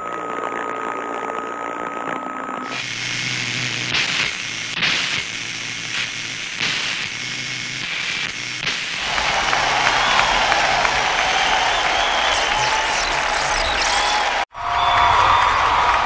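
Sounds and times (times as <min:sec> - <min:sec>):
static-like hiss: 0:02.7 - 0:14.4.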